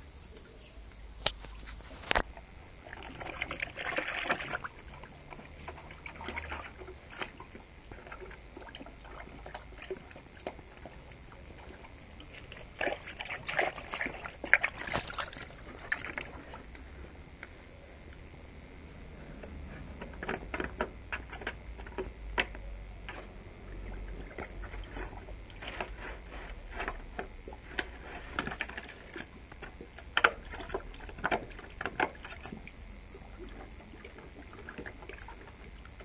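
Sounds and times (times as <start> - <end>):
plastic jug knocking and scraping: 5.3 - 16.6, 19.7 - 32.6.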